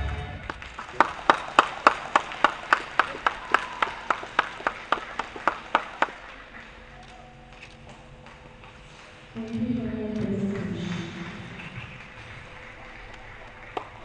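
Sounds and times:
hand claps: 0:00.4 - 0:06.8, 0:10.5 - 0:14.0.

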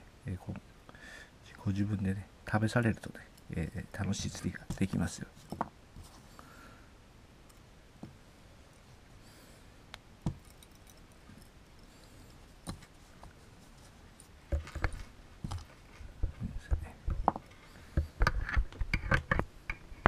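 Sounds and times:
metal fishing tackle clicking: 0:10.3 - 0:11.7.

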